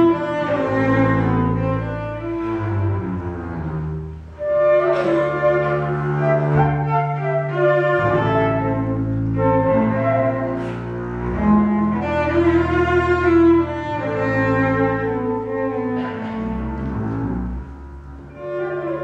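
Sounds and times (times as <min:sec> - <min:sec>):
bowed cello: 0:00.0 - 0:19.0
bowed double bass: 0:00.0 - 0:19.0
flute: 0:04.4 - 0:10.7.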